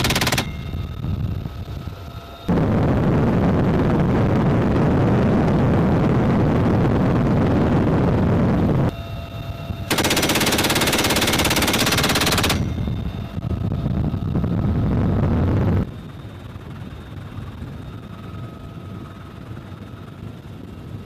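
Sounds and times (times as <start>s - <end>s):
machine-gun fire: 0.0s - 0.7s, 9.9s - 12.7s
helicopter rotor and engine: 0.0s - 21.0s.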